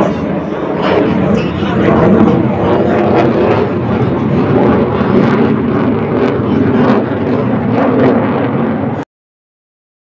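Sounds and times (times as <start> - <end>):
jet engine roaring: 0.0 - 9.0.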